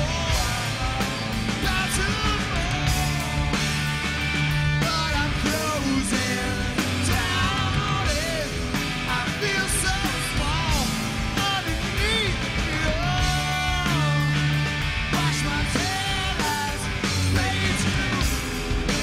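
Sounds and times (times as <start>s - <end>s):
man singing: 0.0s - 3.8s, 4.7s - 14.5s, 15.1s - 19.0s
drum kit with cymbals: 0.0s - 19.0s
electric guitar: 0.0s - 19.0s.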